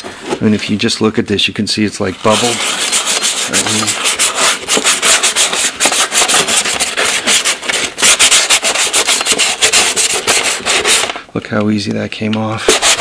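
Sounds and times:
sanding sponge scrubbing plastic: 2.2s - 11.1s, 12.6s - 13.0s.

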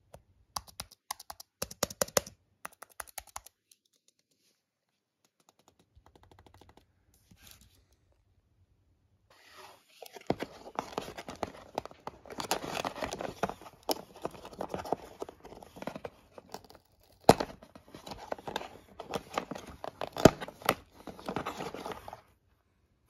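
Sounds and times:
sharp clicks and taps: 0.1s - 4.3s
paper and cardboard crinkling: 9.9s - 22.3s.

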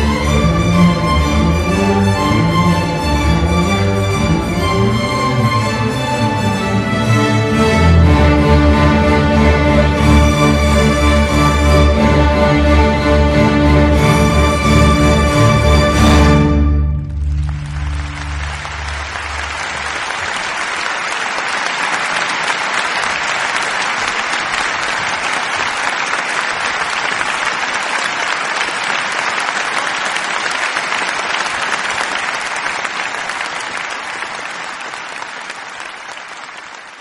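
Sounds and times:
string ensemble chord: 0.0s - 20.5s
applause: 17.1s - 37.0s.

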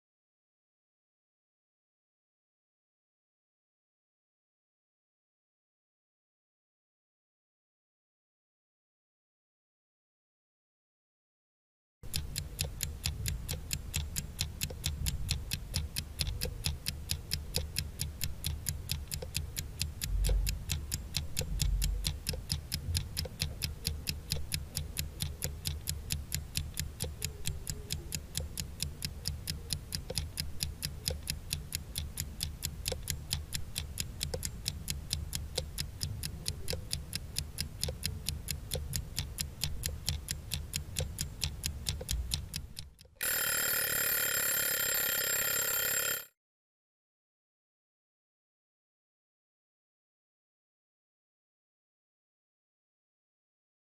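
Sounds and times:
clock ticking fast: 12.0s - 46.3s.

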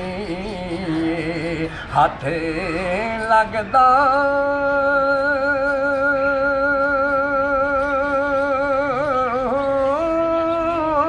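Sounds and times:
man singing with vibrato: 0.0s - 11.0s.

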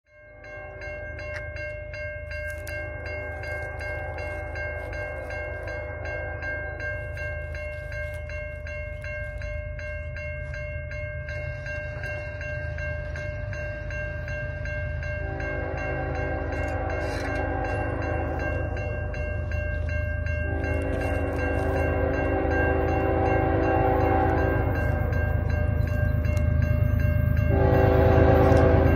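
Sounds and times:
railway crossing bell ringing: 0.0s - 28.9s
locomotive multi-note horn: 15.2s - 19.1s, 20.4s - 25.2s, 27.5s - 28.9s.

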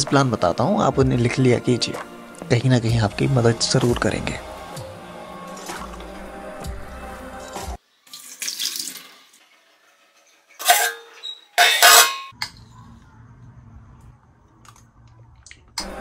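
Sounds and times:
background music: 0.0s - 7.8s, 15.8s - 16.0s
water splashing into metal pan: 8.0s - 9.4s.

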